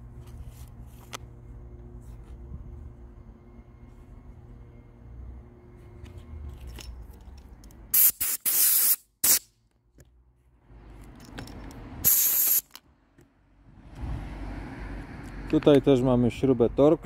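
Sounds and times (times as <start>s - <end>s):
compressed air blasts hissing: 7.9s - 9.5s, 12.0s - 12.7s.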